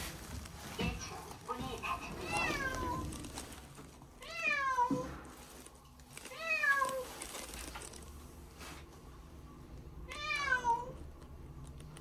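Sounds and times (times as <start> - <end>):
cat meowing: 2.2 - 3.1, 4.2 - 5.1, 10.1 - 11.0.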